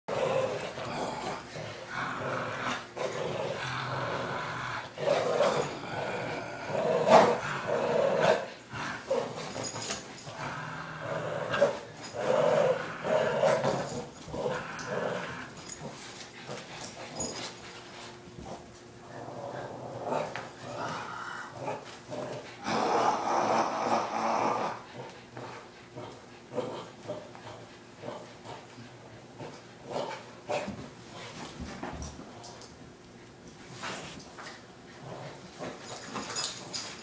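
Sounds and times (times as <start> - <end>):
dog growling: 0.1 - 17.4, 18.4 - 28.7, 34.9 - 36.9.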